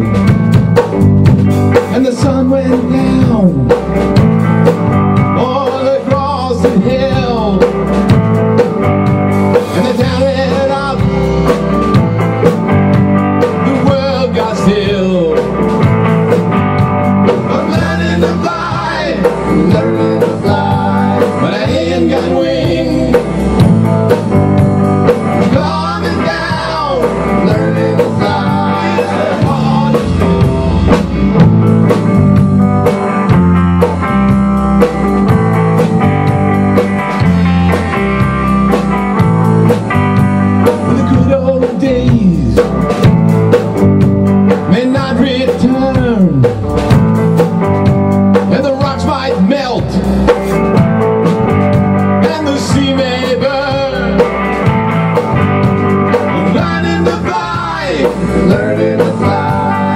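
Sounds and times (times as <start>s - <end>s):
drum kit: 0.0s - 59.9s
electric bass: 0.0s - 59.9s
electric guitar: 0.0s - 59.9s
man singing: 1.8s - 3.9s, 5.3s - 7.9s, 9.5s - 11.6s, 13.4s - 15.6s, 17.2s - 23.6s, 25.0s - 31.0s, 40.6s - 42.8s, 44.5s - 46.6s, 48.4s - 50.3s, 52.2s - 54.5s, 56.1s - 59.9s.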